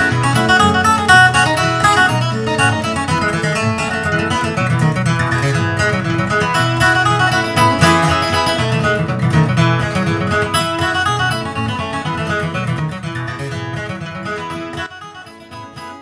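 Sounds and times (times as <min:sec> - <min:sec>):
guitar background music: 0:00.0 - 0:16.0.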